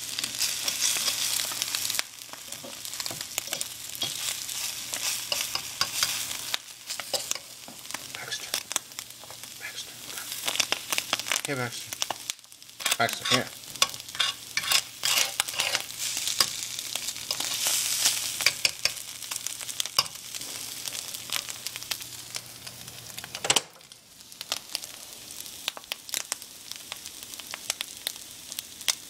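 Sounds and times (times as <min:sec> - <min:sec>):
egg sizzling on griddle: 0:00.0 - 0:29.0
metal fork scraping iron: 0:13.2 - 0:15.9.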